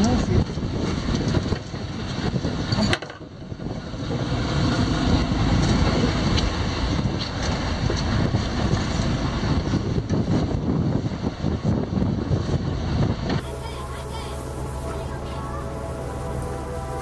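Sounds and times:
wind buffeting microphone: 0.0s - 17.0s
boat rumbling: 3.3s - 11.4s, 12.4s - 17.0s.

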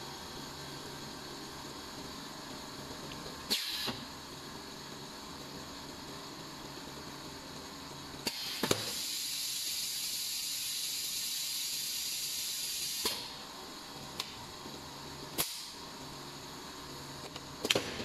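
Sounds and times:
compressed air hissing: 3.5s - 4.0s, 8.2s - 13.4s
pneumatic cylinders clacking: 3.5s - 4.0s, 8.2s - 9.2s.

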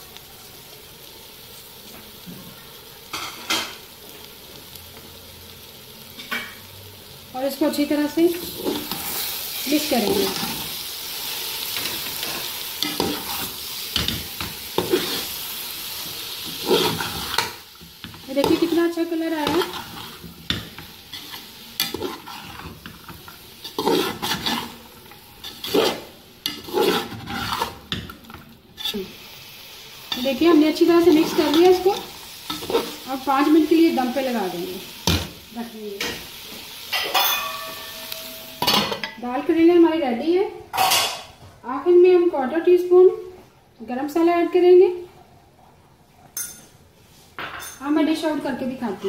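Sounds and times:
food sizzling in a pot: 0.0s - 45.1s, 46.4s - 49.0s
metal spoon scraping metal pot: 25.4s - 27.8s.

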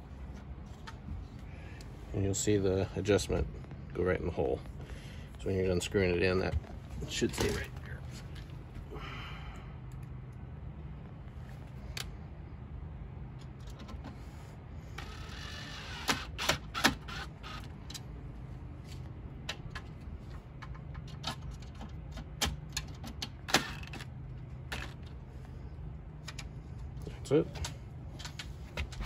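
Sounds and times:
cordless drill running: 15.0s - 17.7s.

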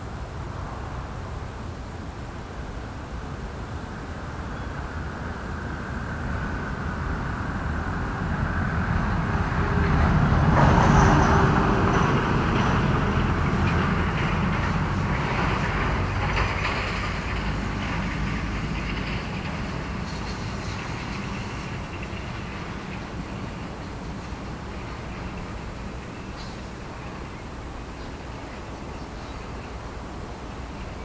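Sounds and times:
vehicle passing: 6.4s - 26.2s.

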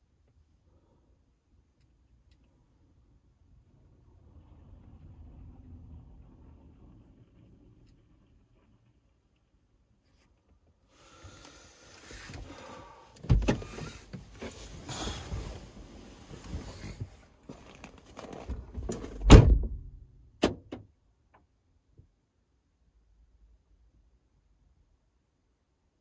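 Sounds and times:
heavy thump: 19.2s - 20.0s.

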